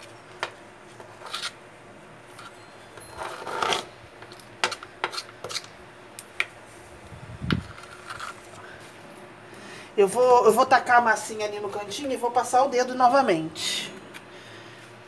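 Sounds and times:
grout scraping and rubbing: 0.9s - 1.6s, 4.6s - 5.7s, 7.5s - 8.6s.

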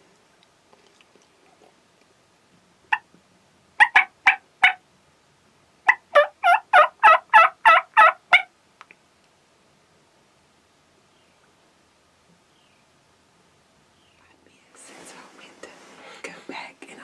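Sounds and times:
wild turkey yelping: 3.8s - 4.8s, 5.9s - 8.5s.

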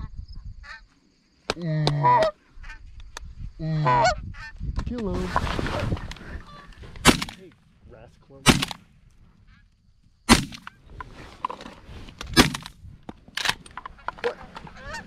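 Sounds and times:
geese honking: 1.9s - 2.9s, 3.8s - 4.6s, 13.9s - 15.0s
shotgun shots: 7.0s - 7.5s, 8.4s - 8.9s, 10.3s - 10.8s, 12.3s - 12.8s.

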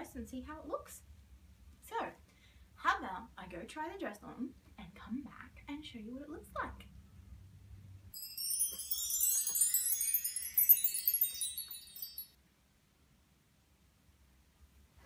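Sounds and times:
shimmering chime: 8.2s - 12.4s.

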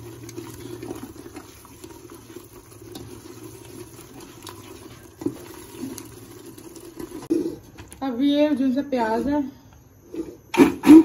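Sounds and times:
thick paste bubbling in a pot: 0.0s - 8.0s
wooden spoon stirring and scraping: 0.0s - 8.0s.

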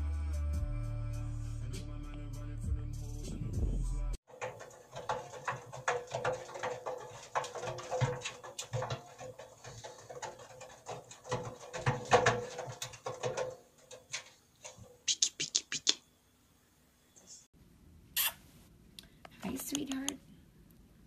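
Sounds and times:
claws scratching on metal drum: 4.3s - 15.2s.

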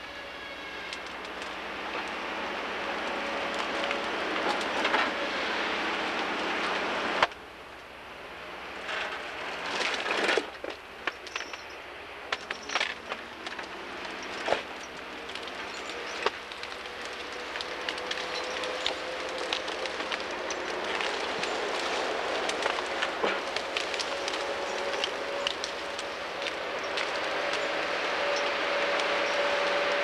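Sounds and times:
sharp cracks and snaps: 12.3s - 30.0s
logging machine engine running: 14.0s - 30.0s.

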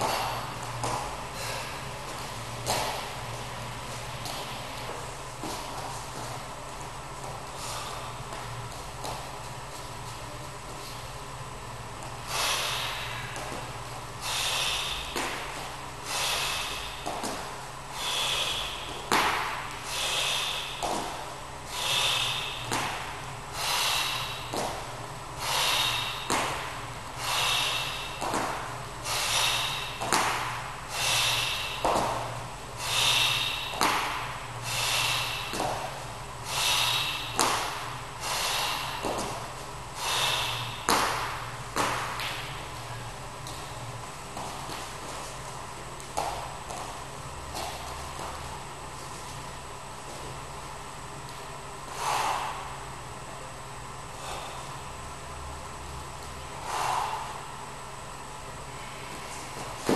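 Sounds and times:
man breathing hard: 0.0s - 9.4s, 12.1s - 43.6s, 51.8s - 53.2s, 54.0s - 55.0s, 56.5s - 59.9s.

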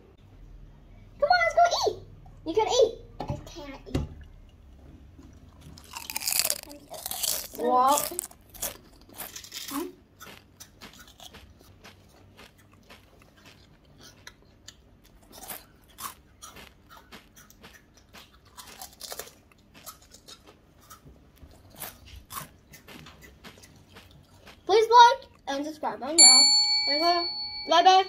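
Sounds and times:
chips crunching: 5.8s - 24.7s.

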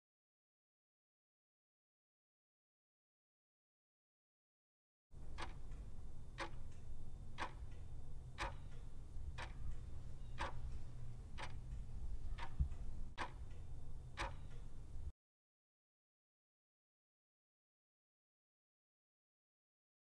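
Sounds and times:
clock ticking: 5.2s - 15.0s.

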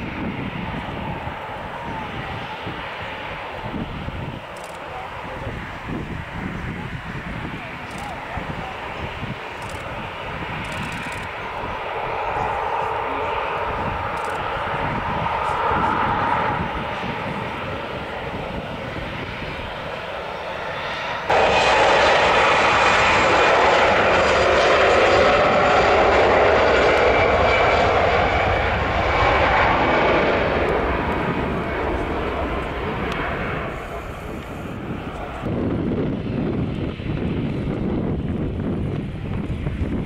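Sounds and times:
jet engines roaring: 0.0s - 40.0s
lower jet engine noise: 0.0s - 40.0s.

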